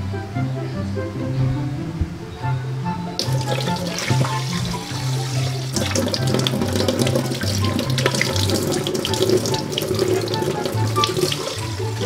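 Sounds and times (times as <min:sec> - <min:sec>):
background music with bass: 0:00.0 - 0:12.0
faucet running: 0:03.2 - 0:12.0
water splashing in sink: 0:03.2 - 0:12.0.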